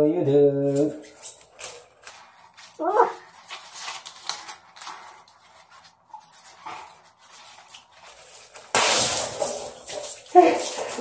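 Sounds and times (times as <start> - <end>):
balloons squeaking and rubbing: 1.0 - 8.7.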